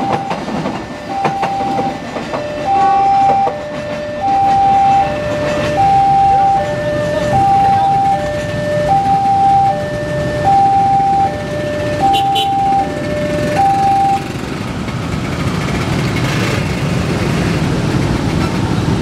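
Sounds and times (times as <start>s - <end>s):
level crossing alarm two-tone: 0.0s - 14.3s
train rumbling by: 0.0s - 19.0s.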